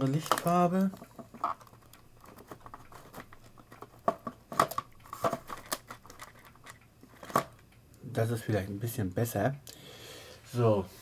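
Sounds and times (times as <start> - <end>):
objects clicking and rustling on desk: 0.1 - 7.6.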